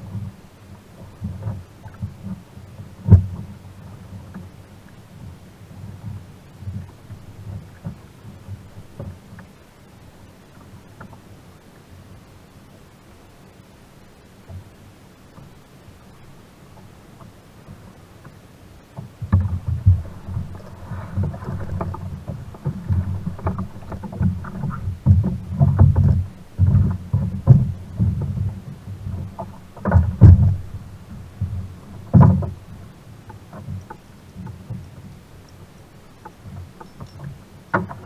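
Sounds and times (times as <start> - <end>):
thumps on plastic kayak hull: 3.0 - 3.6, 19.0 - 32.6, 37.7 - 38.0.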